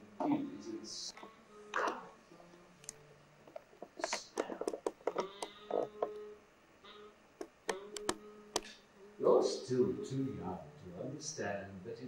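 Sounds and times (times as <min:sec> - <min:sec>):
faint steady hum: 0:00.0 - 0:12.0
quick clicks and taps: 0:03.5 - 0:05.5.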